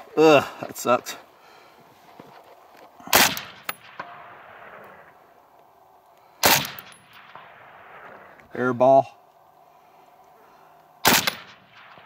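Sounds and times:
rifle shots with rolling echo: 3.0 - 5.3, 6.4 - 8.8, 11.0 - 12.0.

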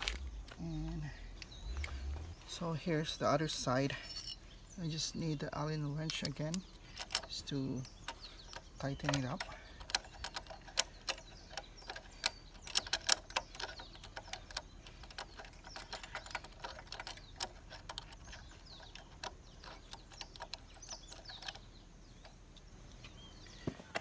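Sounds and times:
allen key clicking in bolt head: 6.0 - 22.3.

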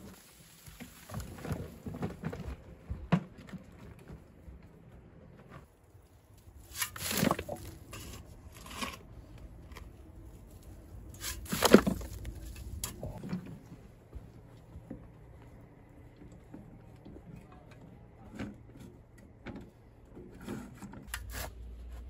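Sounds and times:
metal wheelbarrow: 6.6 - 9.9, 11.1 - 13.7
shovel scraping soil: 6.6 - 9.9, 11.1 - 13.2, 20.4 - 22.0.

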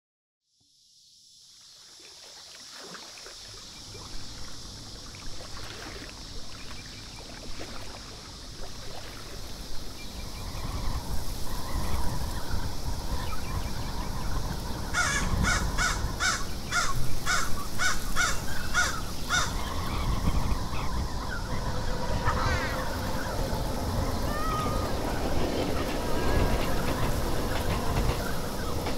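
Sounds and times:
crow cawing: 14.9 - 19.6
low outdoor rumble: 19.0 - 28.9.

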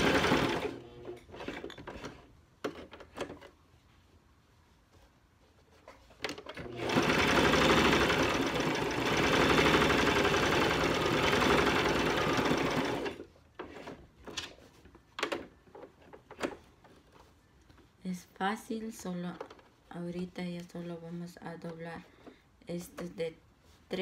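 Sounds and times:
sewing machine running: 0.0 - 1.4, 6.6 - 13.2.

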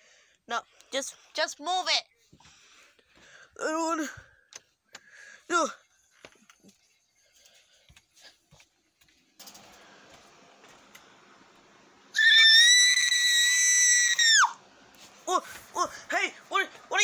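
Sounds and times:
person screeching high-pitched: 12.2 - 14.6.

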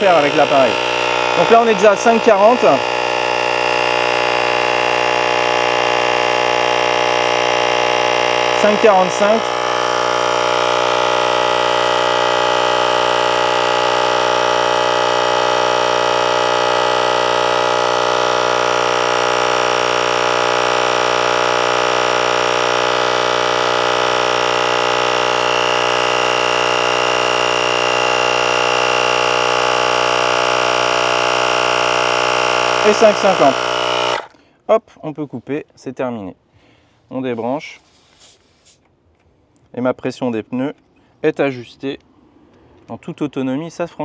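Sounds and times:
tyre inflator compressor running: 0.0 - 34.6.

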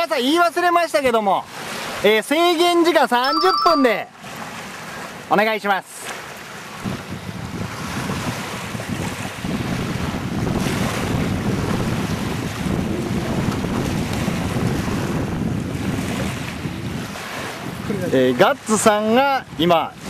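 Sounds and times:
waves washing onto pebbles: 4.2 - 18.8
wind buffeting microphone: 6.7 - 18.8.

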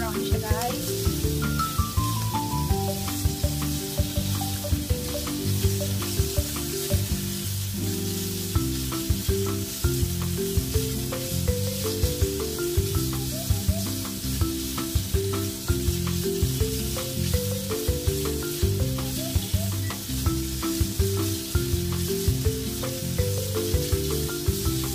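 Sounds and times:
background music: 0.0 - 24.9
meat and onion sizzling in a pan: 0.0 - 24.9
chopsticks clicking against pan: 0.1 - 7.4.

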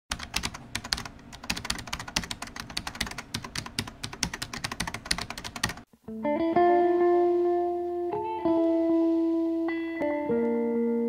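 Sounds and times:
fast typing on keyboard: 0.1 - 5.9.

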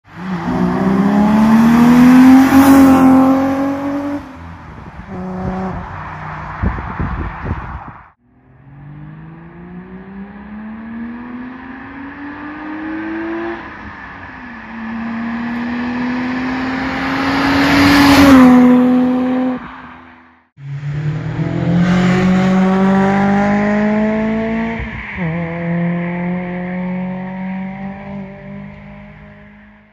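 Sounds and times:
car engine accelerating hard: 0.2 - 4.4, 20.6 - 29.8
car passing by: 0.2 - 29.0.

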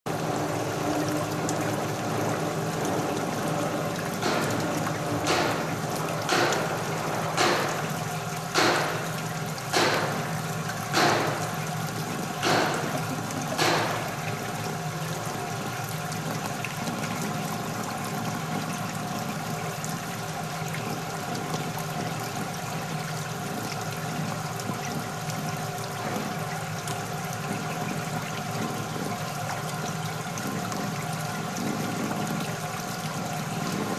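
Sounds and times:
liquid splashing: 0.1 - 18.5
sharp knocks: 4.2 - 11.6, 12.4 - 14.2.

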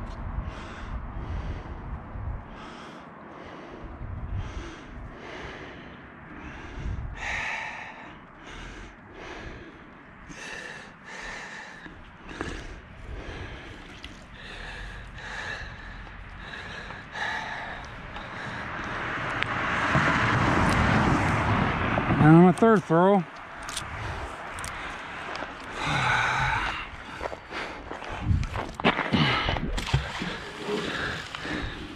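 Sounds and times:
man breathing heavily: 0.2 - 21.9, 23.5 - 31.9
rush of noise: 15.7 - 22.6, 23.5 - 31.9.

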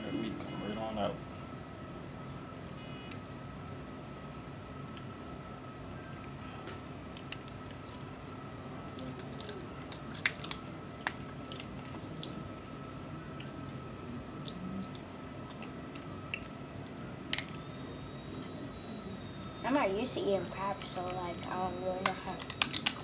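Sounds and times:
chewing and mouth noises: 6.1 - 12.5, 13.2 - 16.6
crab shell cracking: 9.0 - 12.4, 14.5 - 16.6, 17.2 - 17.6, 22.0 - 23.0
faint high tone: 18.0 - 22.4.

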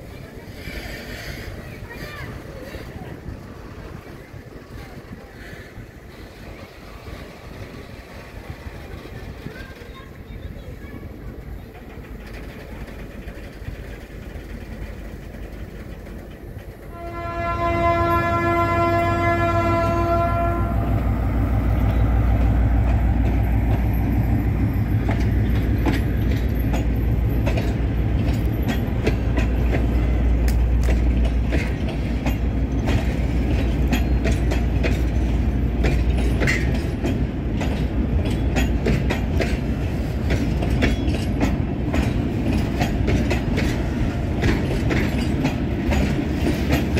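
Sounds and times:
wheels clicking over rail joints: 0.0 - 20.6, 21.5 - 46.9
train rumble: 0.0 - 46.9
locomotive horn: 16.9 - 21.0.

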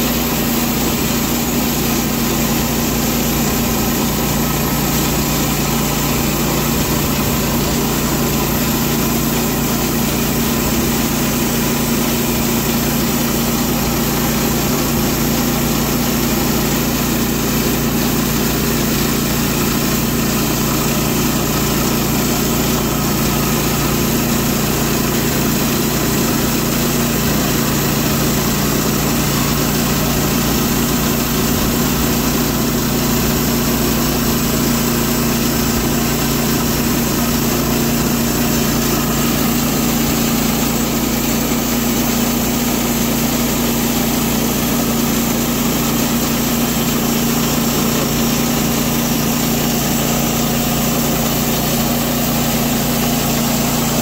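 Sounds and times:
band sawmill running under load: 0.0 - 54.0.

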